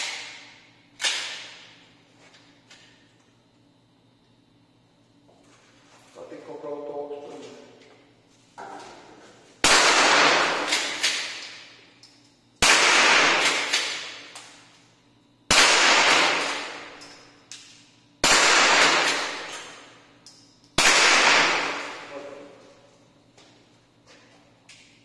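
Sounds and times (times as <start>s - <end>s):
rifle gunshots echoing: 9.6s - 11.8s, 12.6s - 14.3s, 15.5s - 17.0s, 18.2s - 19.8s, 20.8s - 22.2s.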